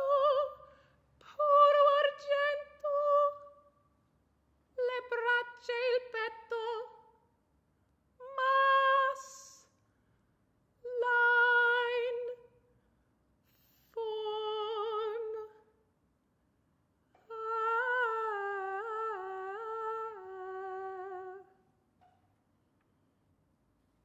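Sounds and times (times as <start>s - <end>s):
woman singing wordless notes: 0.0s - 0.6s, 1.2s - 3.6s, 8.2s - 9.7s, 10.8s - 12.5s, 13.9s - 15.6s, 17.2s - 21.6s.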